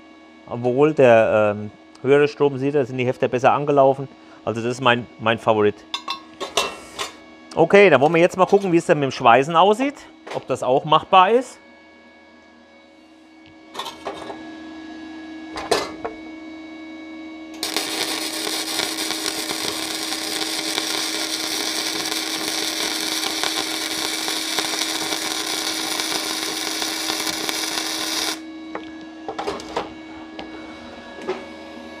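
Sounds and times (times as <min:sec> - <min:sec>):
welding arc crackling: 0:17.6 - 0:28.4.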